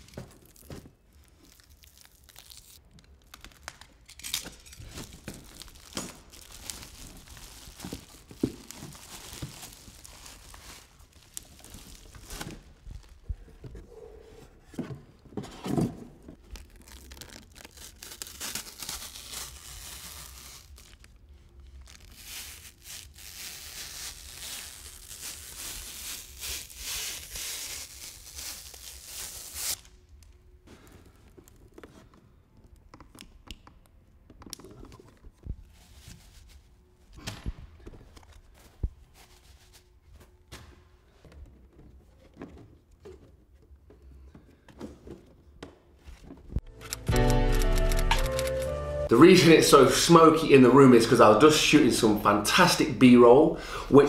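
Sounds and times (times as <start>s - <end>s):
plastic wrapping crinkling: 0.0s - 13.3s, 16.4s - 30.0s
cardboard inserts rustling: 2.3s - 13.8s.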